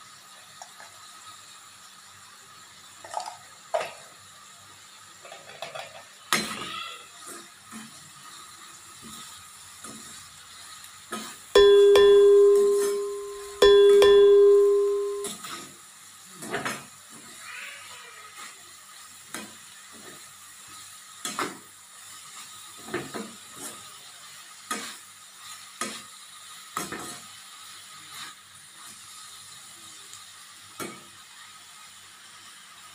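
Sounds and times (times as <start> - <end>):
frying pan hiss: 0.0 - 32.9
loud ringing dings: 11.6 - 15.3.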